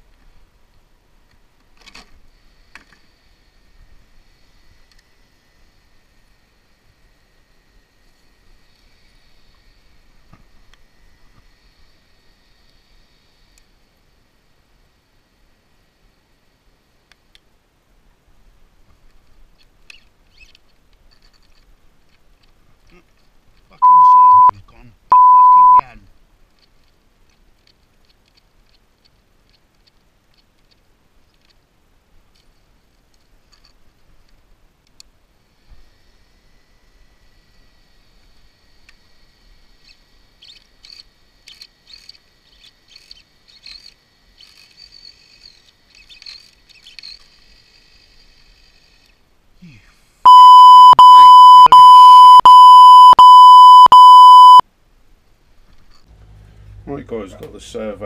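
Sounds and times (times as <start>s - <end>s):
electronic censor bleep: 23.8s - 24.5s, 25.1s - 25.8s, 50.3s - 54.6s.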